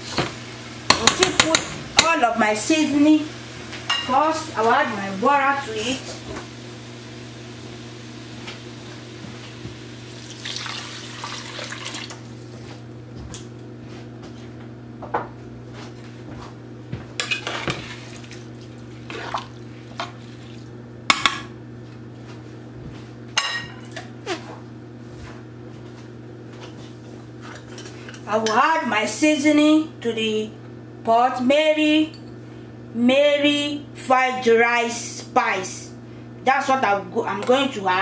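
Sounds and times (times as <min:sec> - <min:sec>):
water pouring into a pot: 0:10.0 - 0:12.4, 0:17.8 - 0:20.7.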